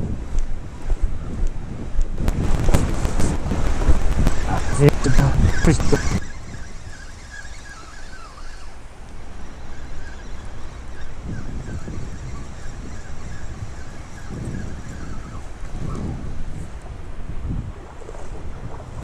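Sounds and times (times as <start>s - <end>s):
wind buffeting microphone: 0.0s - 19.0s
distant bird calls: 3.8s - 16.8s
legs wading through water: 16.7s - 19.0s.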